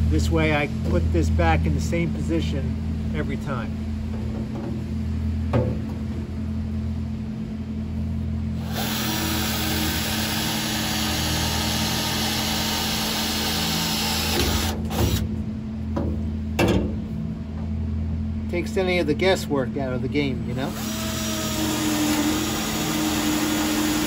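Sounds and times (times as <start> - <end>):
cordless drill boring through metal: 8.6 - 15.2, 20.6 - 24.0.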